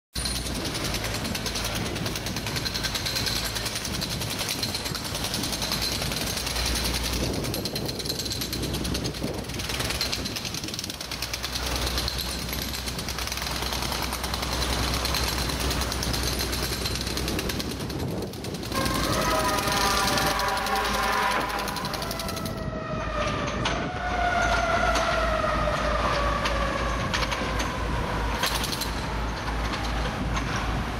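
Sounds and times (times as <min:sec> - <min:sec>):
hydraulic breaker hammer pounding: 0:00.2 - 0:22.6
low engine drone: 0:10.9 - 0:30.9.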